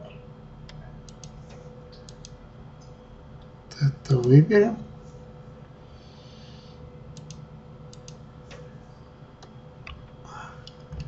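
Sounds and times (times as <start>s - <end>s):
faint steady hum: 0.0s - 11.0s
keyboard and mouse clicks: 0.7s - 2.4s, 7.2s - 8.6s.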